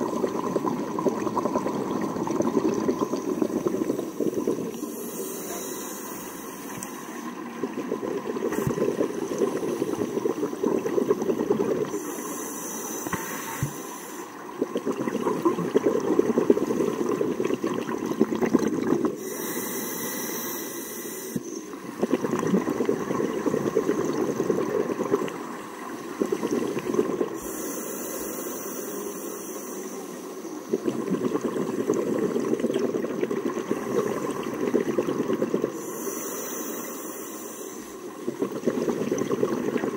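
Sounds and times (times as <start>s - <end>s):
bubbling exhale: 0.0s - 39.9s
regulator hissing inhale: 3.8s - 7.4s, 8.5s - 10.3s, 11.8s - 14.5s, 19.2s - 21.7s, 26.3s - 30.6s, 35.7s - 38.2s.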